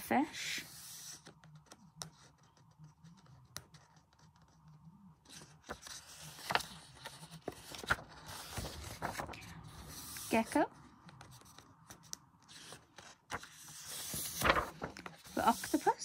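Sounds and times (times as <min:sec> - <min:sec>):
paper crackling: 0:05.2 - 0:16.0
paper page rustling: 0:05.2 - 0:16.0.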